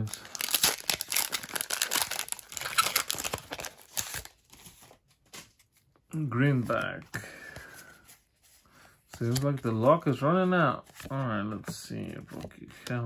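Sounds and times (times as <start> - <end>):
foil wrapper crackling: 0.0 - 4.6.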